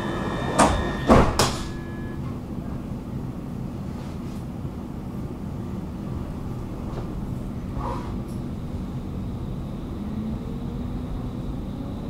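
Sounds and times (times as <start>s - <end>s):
sliding doors thudding shut: 0.0s - 2.2s
steady high tone: 0.0s - 2.4s
train low hum: 0.0s - 12.0s.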